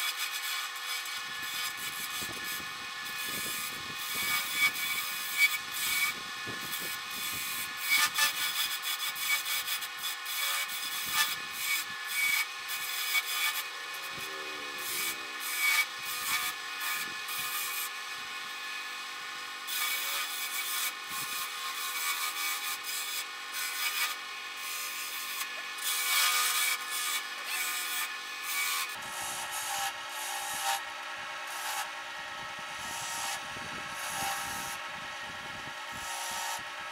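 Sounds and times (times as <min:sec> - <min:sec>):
chisel scraping spinning wood: 0:00.0 - 0:18.7, 0:25.4 - 0:36.8
lathe motor hum: 0:13.6 - 0:17.3.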